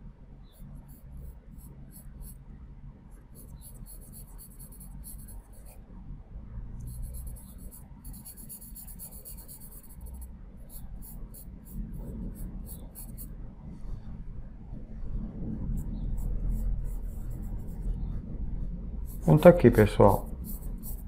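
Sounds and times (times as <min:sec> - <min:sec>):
charcoal pencil scratching on paper: 0:00.5 - 0:02.4, 0:03.3 - 0:05.8, 0:06.9 - 0:13.3, 0:15.8 - 0:18.0, 0:19.1 - 0:21.0.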